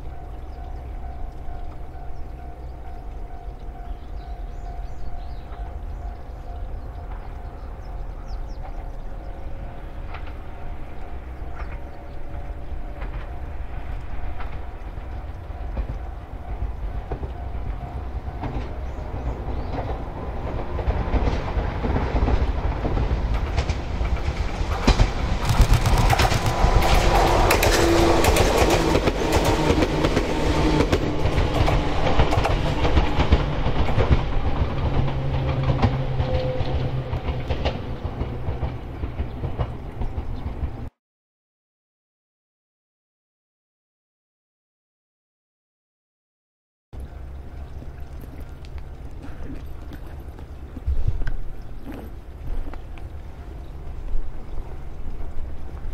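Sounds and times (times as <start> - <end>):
electric train passing: 0.0 - 40.9, 53.0 - 55.9
wheels clattering over rail joints: 9.7 - 40.9.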